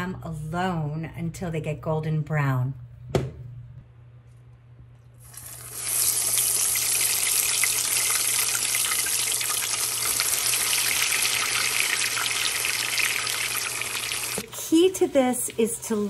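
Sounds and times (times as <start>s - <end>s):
hot oil sizzling: 5.2s - 16.0s.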